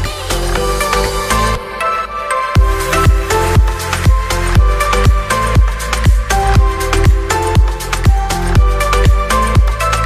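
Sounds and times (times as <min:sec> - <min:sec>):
electronic music: 0:00.0 - 0:10.0
heavy kick-drum beat: 0:02.6 - 0:09.8.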